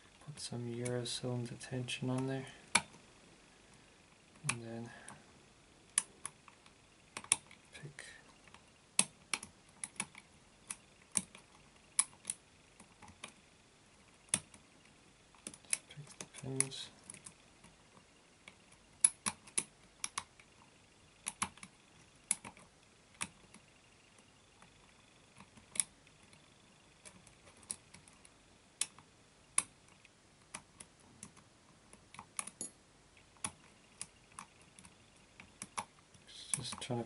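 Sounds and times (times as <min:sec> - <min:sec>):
lock pick clicking on pins: 0:18.5 - 0:20.4, 0:29.6 - 0:32.8.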